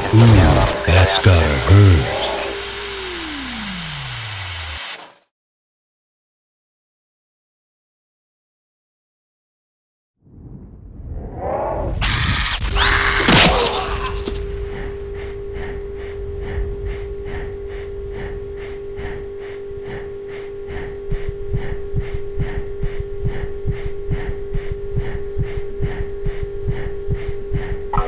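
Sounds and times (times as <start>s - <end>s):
held eerie tone: 0.0s - 4.4s
fast even pulsing: 0.0s - 5.0s.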